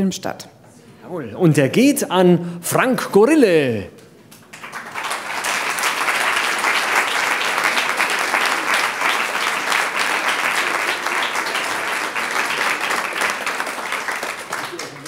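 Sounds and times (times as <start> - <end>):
large audience applauding: 4.3 - 15.0.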